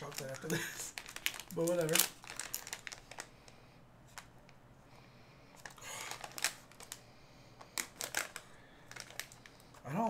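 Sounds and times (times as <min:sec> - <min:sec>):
foil wrapper crinkling: 0:00.0 - 0:04.3, 0:05.6 - 0:10.0.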